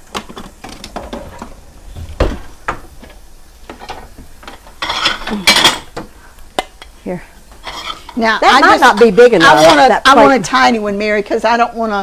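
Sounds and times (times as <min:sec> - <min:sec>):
dishes clinking: 0:00.2 - 0:06.8, 0:07.6 - 0:10.0
cupboard knocks: 0:00.9 - 0:03.1.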